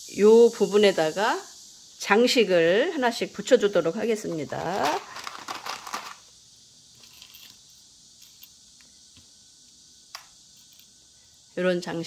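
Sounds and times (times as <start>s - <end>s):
paper rustling: 4.5s - 6.2s.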